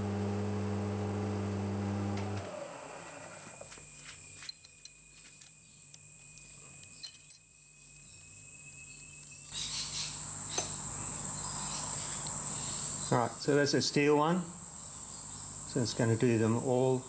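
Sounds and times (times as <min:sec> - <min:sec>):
hiss with low hum: 0:09.6 - 0:17.0.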